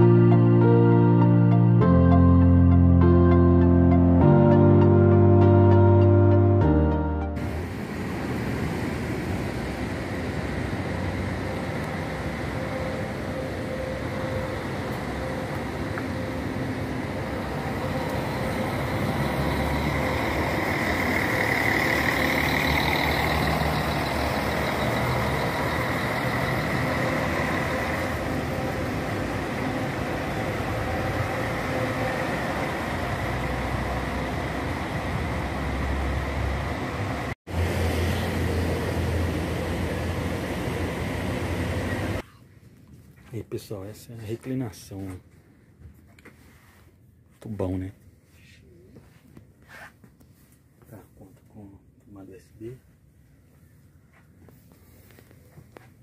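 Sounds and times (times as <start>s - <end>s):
coach engine passing: 2.2s - 42.2s.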